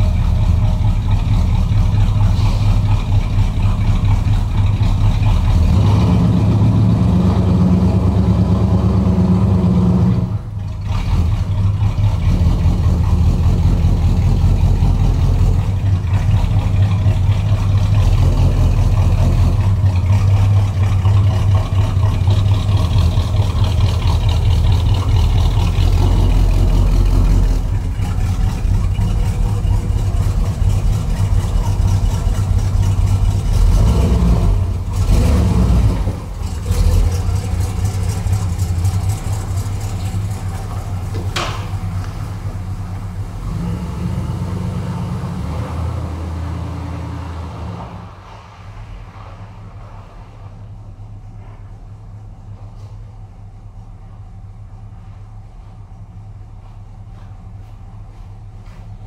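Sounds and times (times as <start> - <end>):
car engine running: 0.0 - 59.0.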